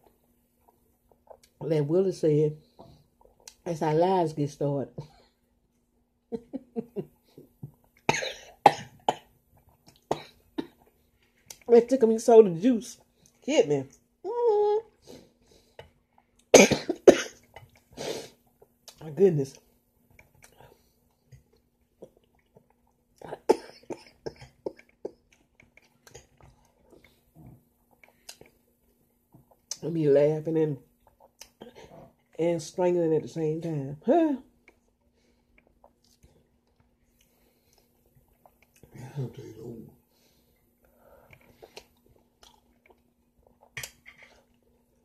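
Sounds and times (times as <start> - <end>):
woman laughing: 6.3 - 7.1
woman coughing hard: 8.1 - 9.2, 16.6 - 17.4, 23.4 - 24.4.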